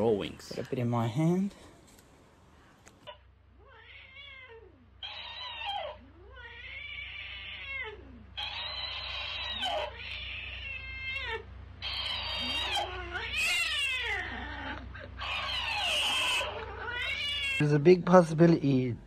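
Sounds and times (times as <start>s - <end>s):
cat yowling: 3.6s - 17.8s.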